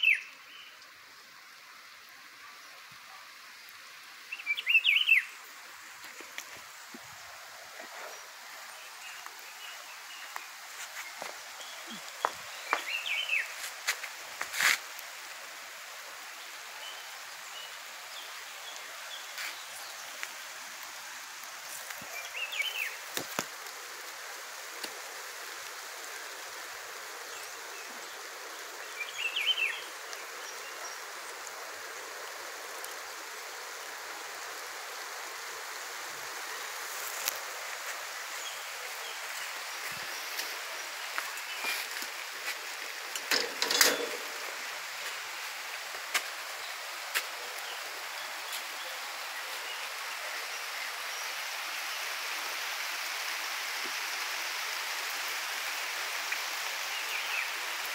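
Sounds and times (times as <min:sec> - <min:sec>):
steady rain: 0:00.0 - 0:57.9.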